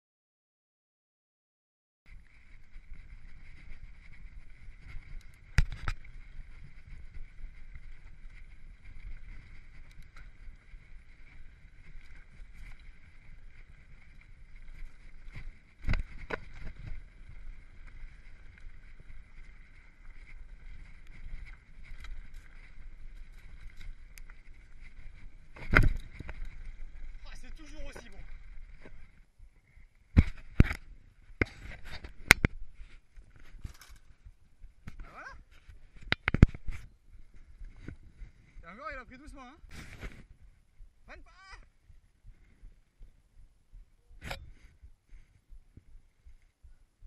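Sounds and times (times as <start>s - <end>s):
tyres rumbling on trail: 2.1s - 41.0s
bike hitting bumps: 4.4s - 27.2s.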